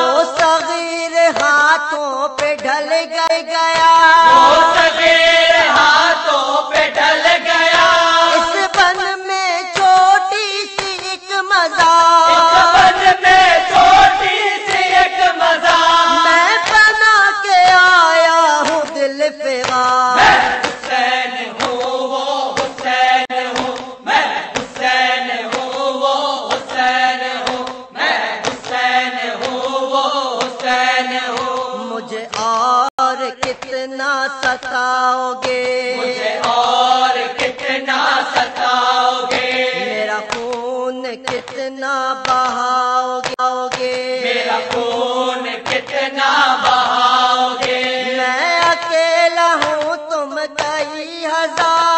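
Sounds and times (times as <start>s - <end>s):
person chanting melodic elegy: 4.1s - 6.6s, 35.9s - 38.2s.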